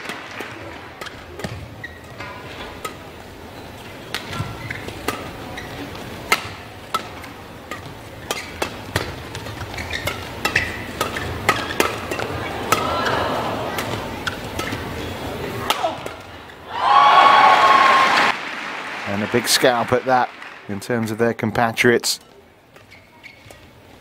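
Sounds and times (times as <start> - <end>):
crowd noise: 0.0 - 24.0
shoes squeaking on court: 1.0 - 15.6, 22.7 - 24.0
rackets striking shuttlecock: 4.0 - 16.3.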